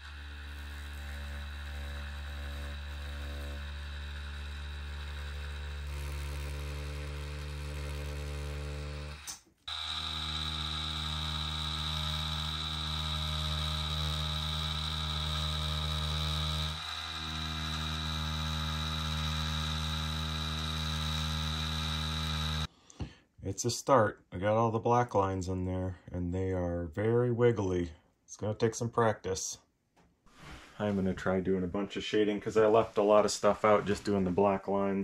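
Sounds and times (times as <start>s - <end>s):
tattoo machine buzzing: 0.0s - 8.3s, 9.1s - 22.7s.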